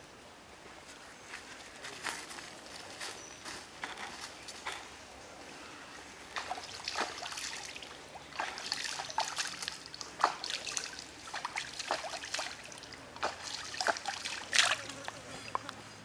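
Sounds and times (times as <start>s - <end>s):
stream water splashing: 6.2s - 15.6s.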